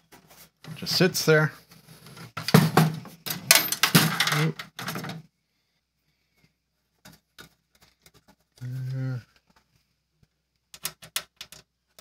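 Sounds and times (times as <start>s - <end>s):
sheet metal clatter and knocks: 2.4s - 5.2s.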